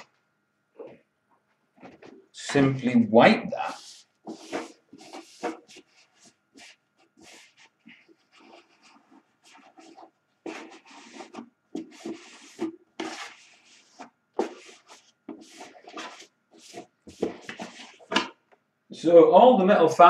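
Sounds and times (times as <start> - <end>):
cloth rag rubbing on metal: 3.6 - 11.4.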